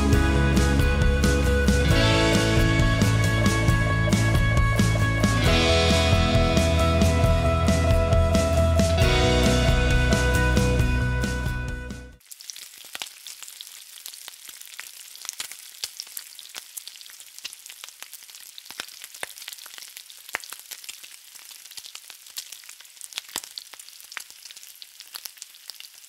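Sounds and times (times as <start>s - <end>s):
bacon frying in a pan: 12.2s - 26.0s
fat popping and crackling: 12.2s - 26.0s.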